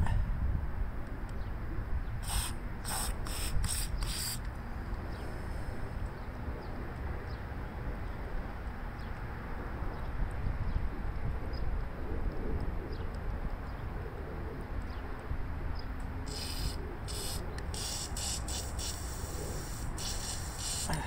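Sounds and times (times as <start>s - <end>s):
aerosol spray hissing bursts: 2.2s - 4.4s, 16.3s - 21.0s.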